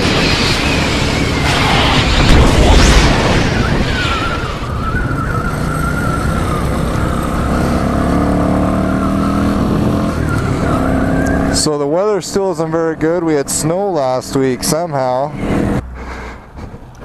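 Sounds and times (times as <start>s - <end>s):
wind rush on microphone: 0.0s - 7.9s.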